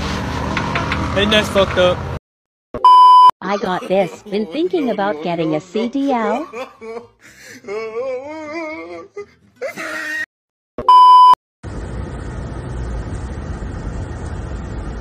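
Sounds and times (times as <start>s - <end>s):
loud steady beep tone: 2.8s - 3.3s, 10.8s - 11.4s
person speaking: 3.4s - 6.7s
road and engine noise inside car: 11.7s - 15.0s.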